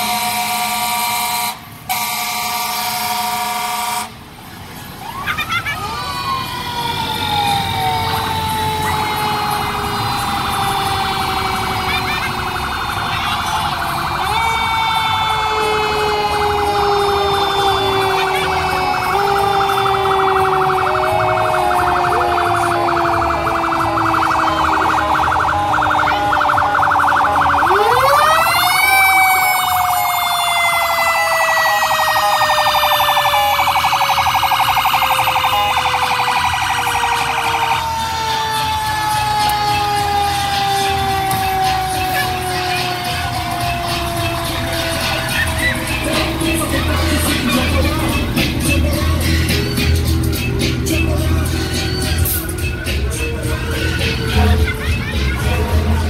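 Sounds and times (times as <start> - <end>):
siren wail: 5.0 - 56.0
fast-pulsing siren tone: 6.7 - 48.3.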